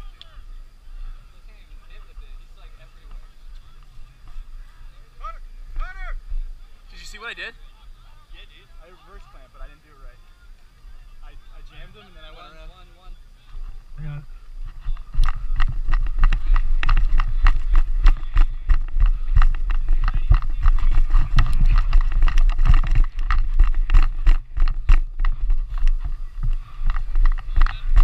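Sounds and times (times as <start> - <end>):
wind buffeting microphone: 13.7 - 28.0
helmet and gear rattling: 15.0 - 28.0.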